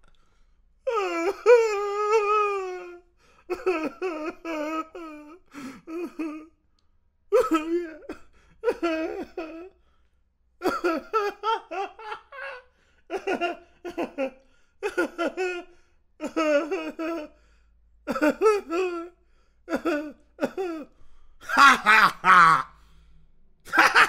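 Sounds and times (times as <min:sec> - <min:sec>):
man laughing: 0:01.0 - 0:06.5, 0:07.4 - 0:09.7, 0:10.6 - 0:17.3, 0:18.1 - 0:19.1, 0:19.7 - 0:22.7, 0:23.7 - 0:24.0.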